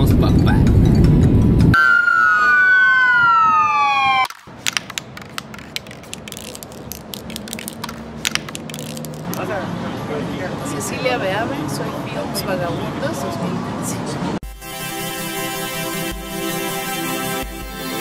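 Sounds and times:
siren-like tone gliding downward: 1.8 - 4.3.

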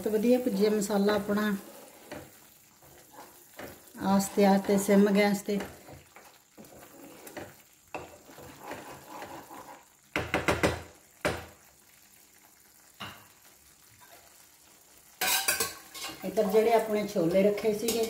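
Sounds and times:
spatula knocking against pan: 10.1 - 11.5.

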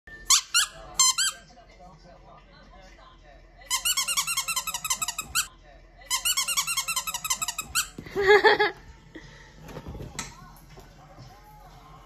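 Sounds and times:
squeaky dog toy squeaking: 0.1 - 1.5, 3.7 - 5.5, 6.1 - 8.0.

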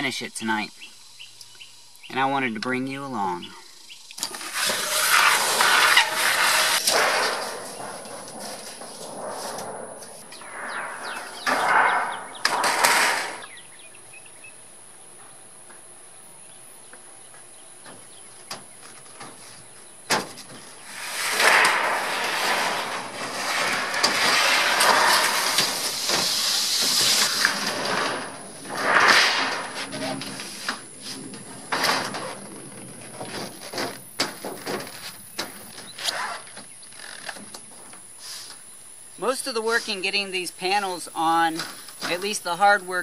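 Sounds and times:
metal panel scraping on wood: 4.4 - 13.7, 20.2 - 36.2.

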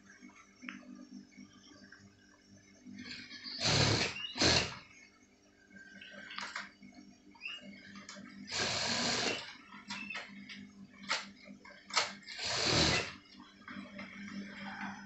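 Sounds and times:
motor hum: 0.0 - 15.0
sewing machine stitching: 3.6 - 4.8, 8.5 - 9.5, 12.3 - 13.2.

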